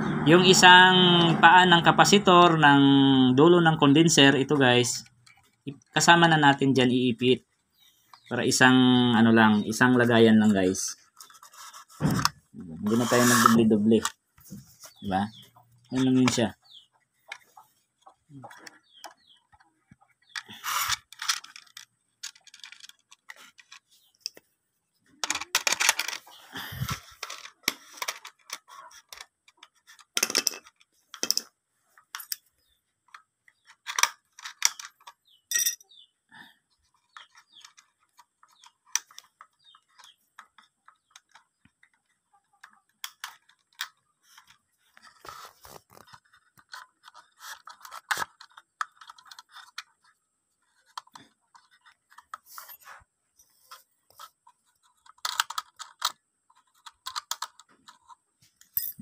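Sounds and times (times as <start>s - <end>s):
rustling and scraping: 7.7s - 35.8s, 36.8s - 59.0s
hands handling small metal parts: 20.2s - 24.4s, 25.2s - 36.0s, 42.7s - 53.0s, 53.7s - 59.0s.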